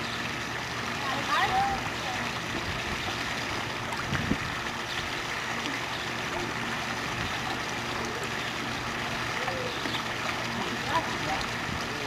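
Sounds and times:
pool water swishing: 0:00.0 - 0:12.0
toddler splashing: 0:04.7 - 0:12.0.

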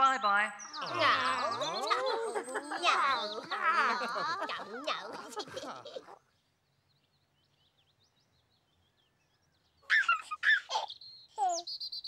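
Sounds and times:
faint birdsong: 0:00.0 - 0:12.0
baby giggling: 0:00.8 - 0:06.2, 0:09.9 - 0:11.6.

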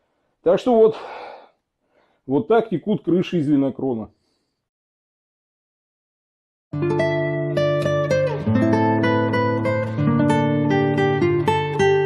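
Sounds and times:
acoustic guitar music: 0:06.8 - 0:12.0.

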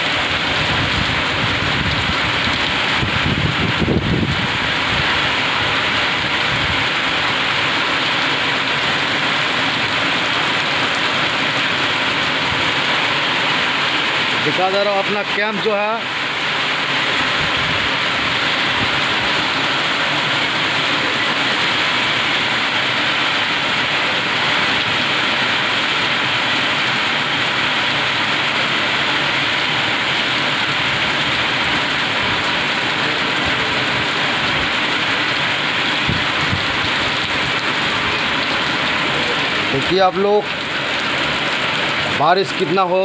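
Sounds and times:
heavy rain on puddles: 0:00.0 - 0:43.0.

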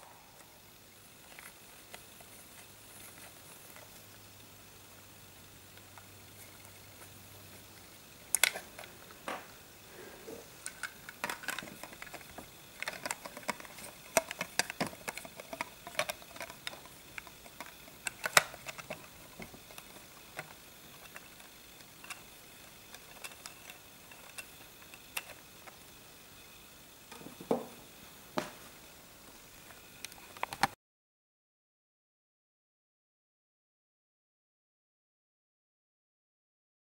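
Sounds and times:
plastic bricks clicking and knocking: 0:10.5 - 0:25.8.

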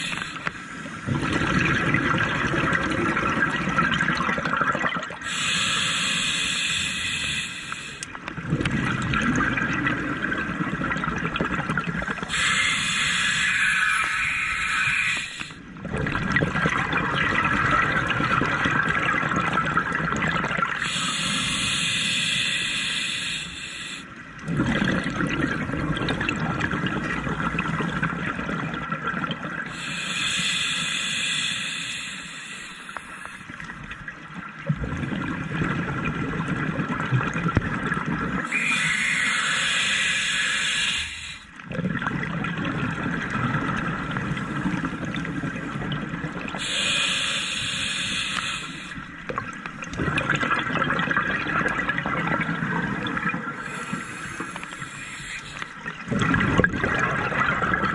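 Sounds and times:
bubbling exhalation: 0:01.0 - 0:05.1, 0:24.4 - 0:28.5, 0:49.3 - 0:57.9
hissing regulator inhalation: 0:05.2 - 0:08.1, 0:12.3 - 0:15.6, 0:20.8 - 0:24.1, 0:29.7 - 0:33.5, 0:38.5 - 0:41.5, 0:46.6 - 0:49.0, 0:53.6 - 0:55.8.

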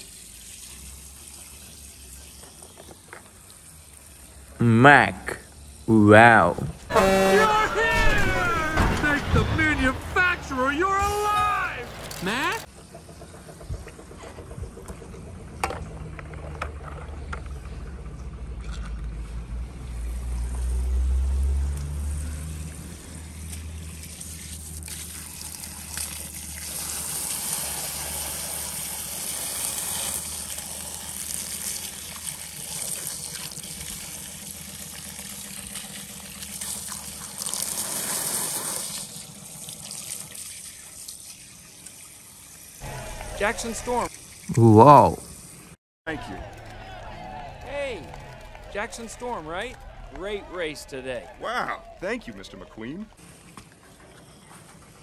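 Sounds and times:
water trickling and splashing: 0:00.0 - 0:04.6, 0:16.0 - 0:42.8, 0:43.4 - 0:44.5, 0:52.2 - 0:55.0.

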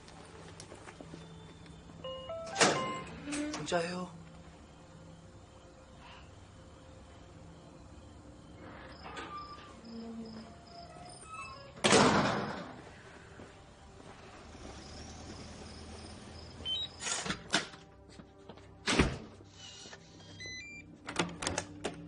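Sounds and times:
faint tense music: 0:00.0 - 0:22.0
loud door hit: 0:11.8 - 0:12.8.

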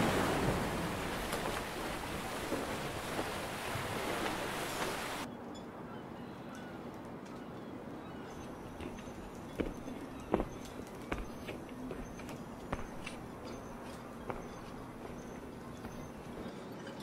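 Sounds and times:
sea waves washing on beach: 0:00.0 - 0:05.3.

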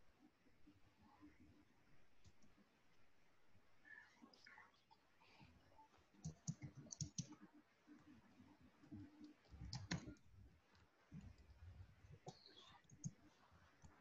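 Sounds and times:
computer mouse clicks: 0:06.2 - 0:07.5, 0:08.8 - 0:10.2, 0:12.2 - 0:13.2.

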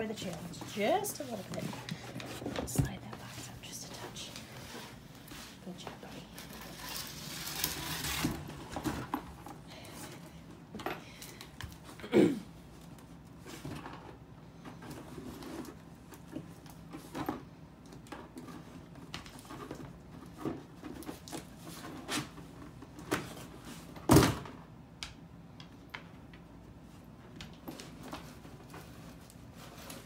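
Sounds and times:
cardboard box scraping across floor: 0:06.5 - 0:08.8.

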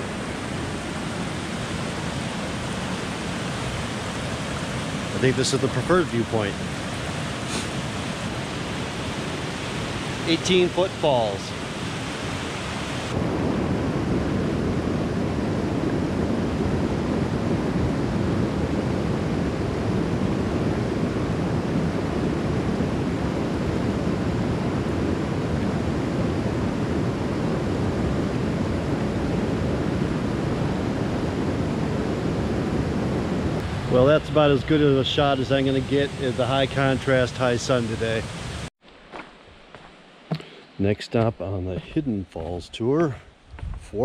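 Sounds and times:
waterfall roaring over rocks: 0:00.0 - 0:13.2, 0:33.6 - 0:38.7.

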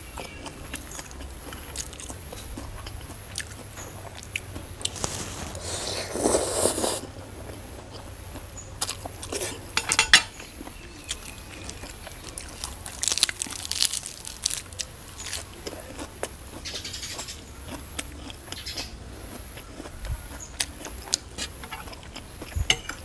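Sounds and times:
chewing: 0:00.1 - 0:23.0
noodles slurped: 0:04.8 - 0:07.1
wet mouth noises: 0:04.8 - 0:07.1.

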